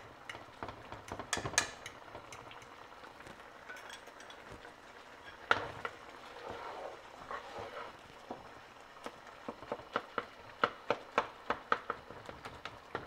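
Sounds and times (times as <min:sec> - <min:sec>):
low bubbling of cooking: 0:00.0 - 0:13.0
spatula scraping a frying pan: 0:05.2 - 0:08.0.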